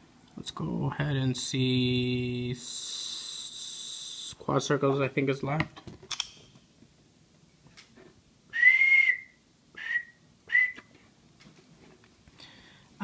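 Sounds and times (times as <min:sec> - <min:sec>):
person whistling: 0:08.5 - 0:10.9.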